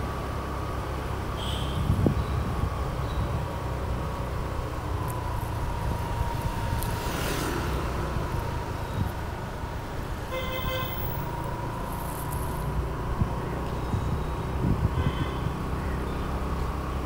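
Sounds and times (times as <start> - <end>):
road traffic rumble: 0.0 - 17.0
vehicle horn toot: 1.4 - 2.0, 10.3 - 11.1, 14.9 - 15.6.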